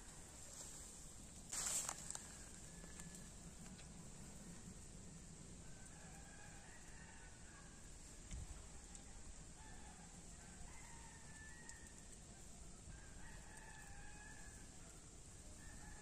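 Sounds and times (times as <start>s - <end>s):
steady background hiss: 0.0s - 16.0s
faint rooster crowing: 1.5s - 3.7s, 5.6s - 8.0s, 8.9s - 16.0s.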